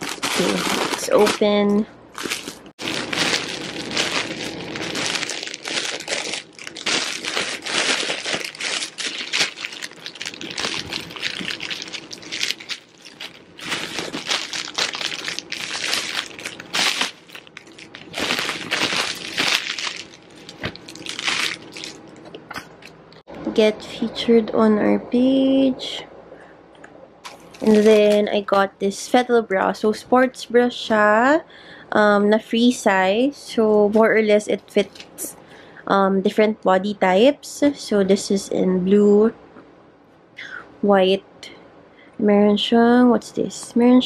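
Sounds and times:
plastic packaging crinkling: 0.0s - 23.0s, 27.2s - 28.6s.

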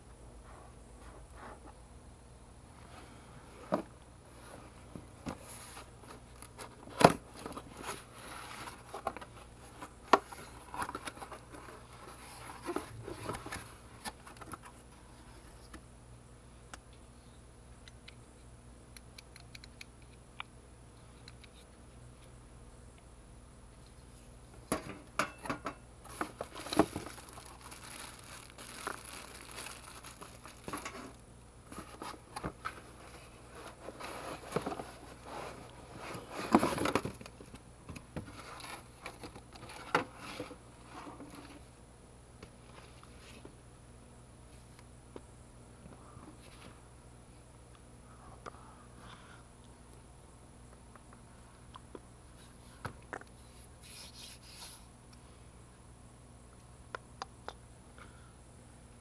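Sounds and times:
packaging crinkling: 26.1s - 32.8s
cardboard box being unpacked: 26.1s - 37.2s.

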